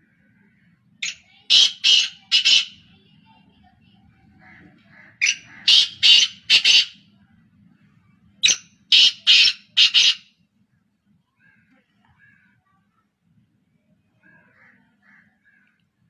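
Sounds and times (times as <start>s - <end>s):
francolin harsh rasping call: 1.0s - 2.9s, 4.4s - 7.0s, 8.4s - 10.3s.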